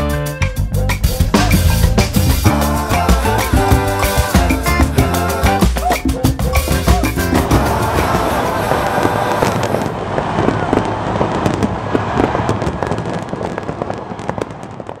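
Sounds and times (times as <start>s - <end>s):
fireworks bangs and crackles: 6.6s - 15.0s.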